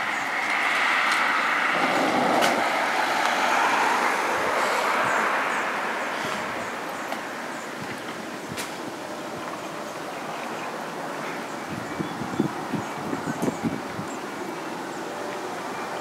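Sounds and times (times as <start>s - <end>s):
jet engine rushing: 0.0s - 6.6s.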